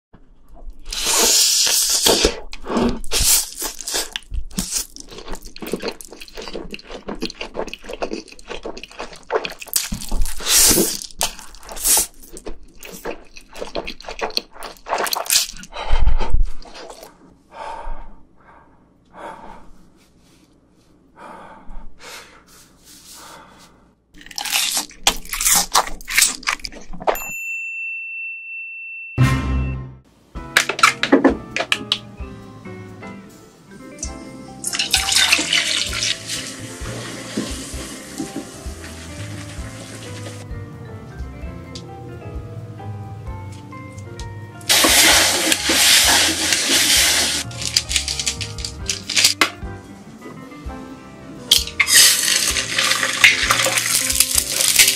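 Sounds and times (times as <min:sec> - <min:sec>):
noodles slurped: 0:00.9 - 0:15.7, 0:34.6 - 0:40.4, 0:44.7 - 0:49.3, 0:51.8 - 0:54.9
wet chewing and smacking: 0:01.6 - 0:15.8, 0:24.2 - 0:27.1
crunchy bites: 0:24.2 - 0:26.9, 0:51.5 - 0:54.9.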